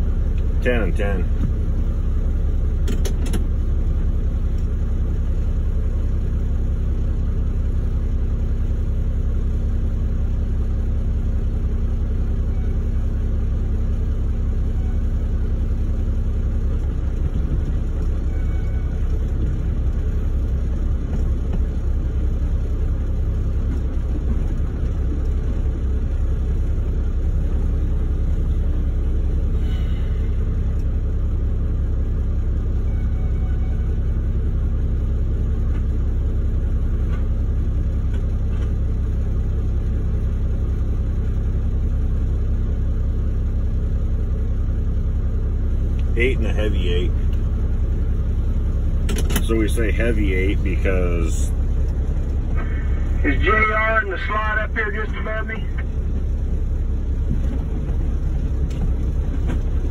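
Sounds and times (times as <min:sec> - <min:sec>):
low rumble inside truck cab: 0:00.0 - 0:59.9.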